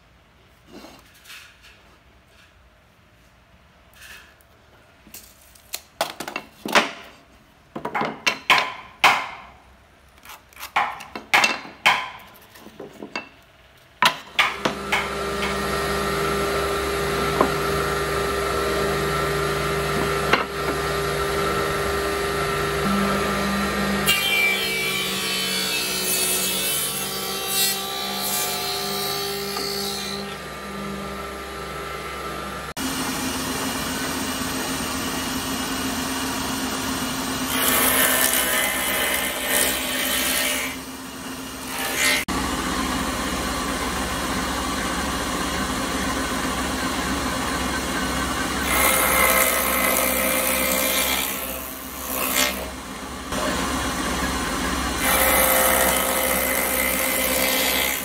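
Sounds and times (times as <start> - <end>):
wooden pieces knocking and scraping: 10.6 - 14.5
blade cutting wood: 14.4 - 32.7, 37.4 - 40.9, 48.5 - 53.8, 55.0 - 58.0
woodworking machine motor hum: 14.4 - 58.0.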